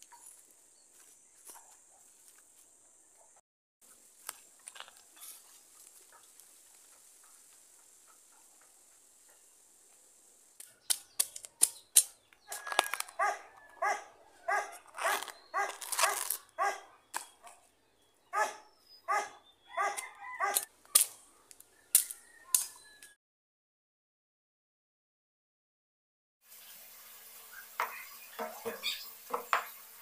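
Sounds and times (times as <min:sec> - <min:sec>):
knife hacking bamboo shoot: 0:10.6 - 0:13.1
dog barking: 0:13.1 - 0:17.6, 0:18.3 - 0:20.7.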